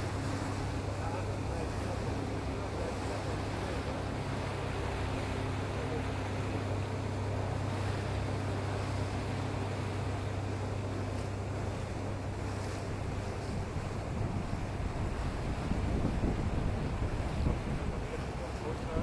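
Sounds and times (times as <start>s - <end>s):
diesel engine drone: 0.0s - 19.0s
water rushing along hull: 0.0s - 19.0s
wind on microphone: 10.8s - 19.0s.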